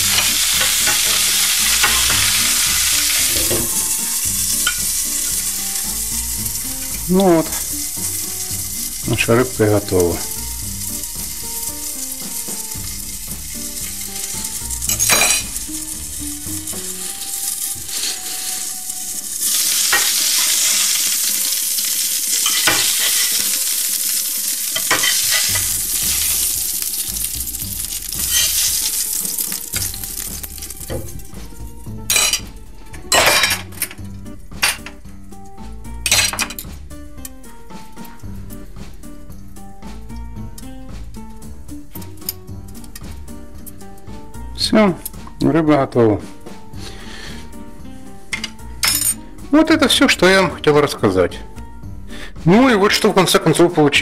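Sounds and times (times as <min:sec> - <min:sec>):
fish sizzling in oil: 0:00.0 - 0:45.2, 0:46.5 - 0:50.5
metal spatula scraping pan: 0:24.8 - 0:27.1.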